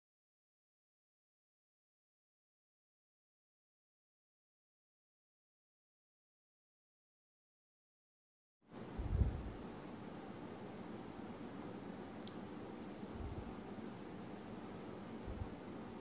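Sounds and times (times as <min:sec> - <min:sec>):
cricket chirping: 0:08.7 - 0:16.0.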